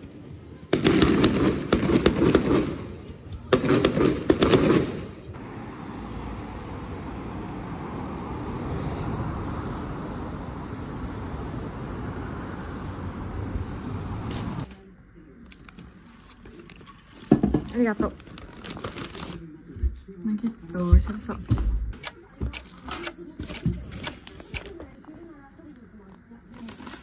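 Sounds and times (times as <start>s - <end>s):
street background noise at night: 0.0s - 27.0s
fireworks bursting with crackle: 0.7s - 5.3s.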